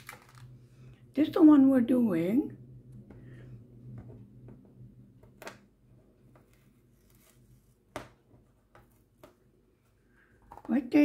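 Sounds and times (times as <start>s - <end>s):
packaging clicks and rustles: 0.0s - 0.6s
faint low hum: 0.0s - 11.0s.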